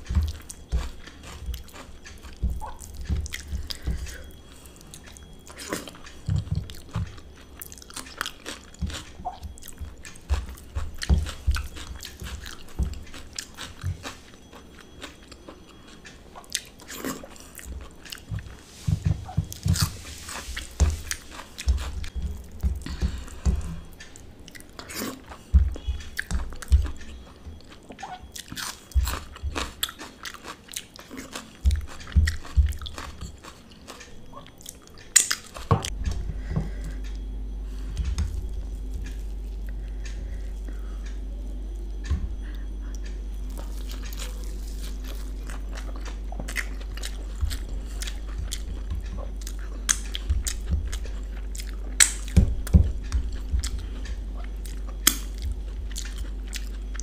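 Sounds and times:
person chewing and biting food: 0:00.0 - 0:57.0
fingers squishing food: 0:19.2 - 0:36.0.

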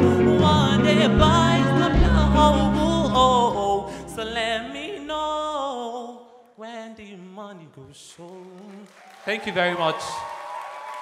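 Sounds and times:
backing music with deep bass: 0:00.0 - 0:04.5.

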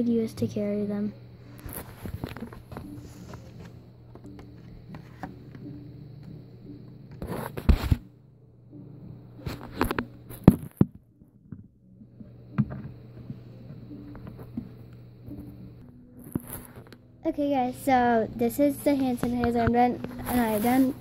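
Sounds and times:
low steady hum: 0:00.0 - 0:21.0
plastic bottles rustling and knocking: 0:01.7 - 0:05.6.

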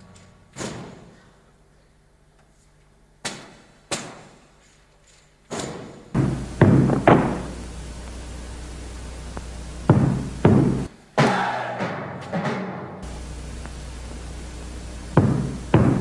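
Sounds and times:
old recording hiss: 0:00.0 - 0:11.2, 0:12.8 - 0:16.0
reverberant drum strikes: 0:09.9 - 0:13.1.

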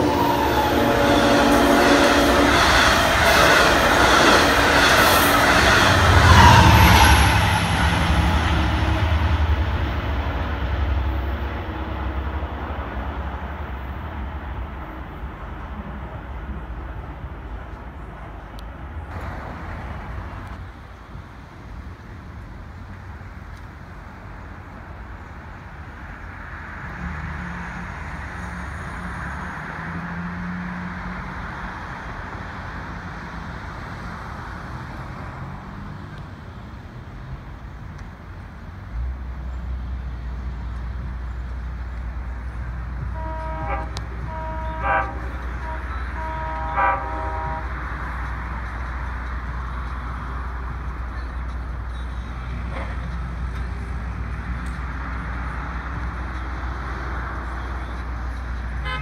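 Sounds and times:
train air horn blasts: 0:00.0 - 0:10.0, 0:43.0 - 0:48.0, 0:58.8 - 0:59.0
locomotive engine rumble: 0:00.0 - 0:26.9, 0:35.6 - 0:59.0.

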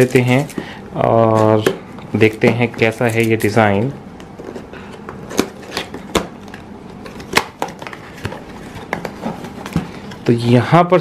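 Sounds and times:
cardboard rustling and scraping: 0:07.0 - 0:10.2.

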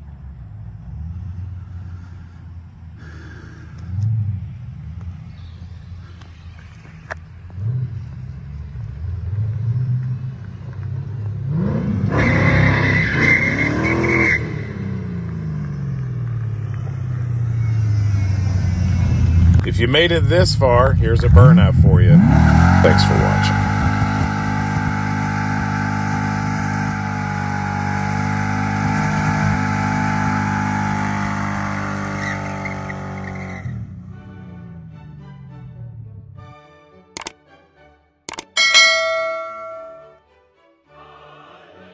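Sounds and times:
car engine revving: 0:03.0 - 0:34.0
car engine revving high: 0:21.2 - 0:33.4.

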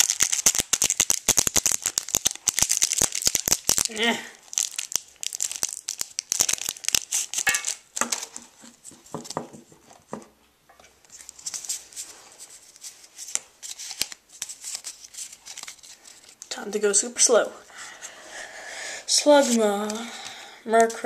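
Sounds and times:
foil wrapper tearing and crinkling: 0:00.0 - 0:08.6, 0:13.2 - 0:16.5.

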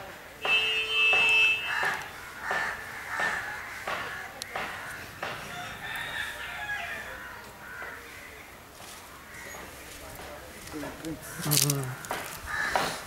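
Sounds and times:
rooster crowing: 0:01.7 - 0:08.0.

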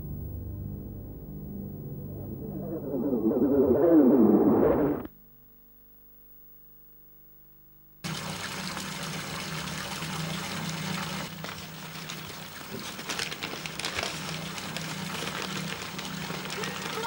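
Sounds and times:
low hum: 0:00.0 - 0:05.1
wrappers crinkling and rustling: 0:11.3 - 0:17.0.

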